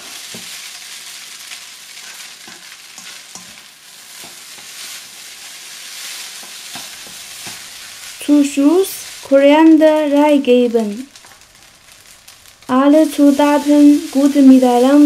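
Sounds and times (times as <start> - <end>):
food sizzling in a wok: 0.0 - 15.0
spatula scraping a wok: 1.6 - 8.2.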